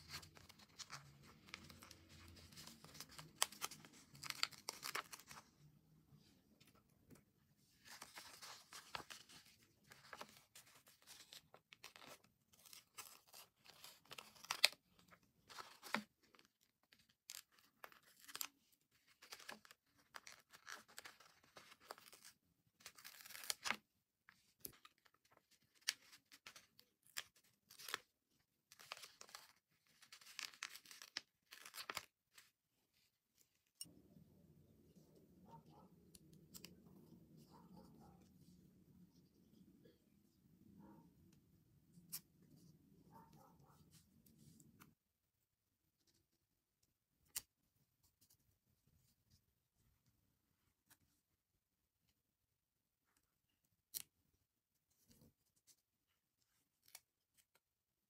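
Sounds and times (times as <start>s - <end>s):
stickers peeling and rustling: 0.0s - 5.5s.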